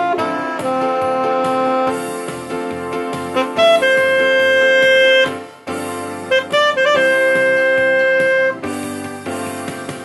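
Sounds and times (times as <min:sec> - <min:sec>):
alto saxophone melody: 0:00.0 - 0:02.2, 0:03.2 - 0:08.9
keyboard accompaniment: 0:00.0 - 0:10.0.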